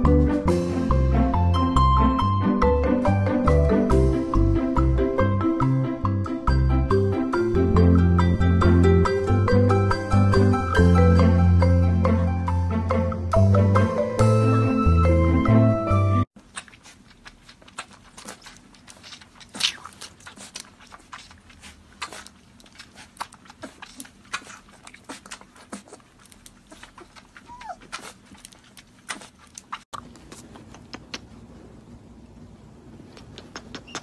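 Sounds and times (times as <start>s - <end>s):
puppy suckling from bottle: 16.4s - 31.3s
puppy squeak: 27.4s - 28.0s.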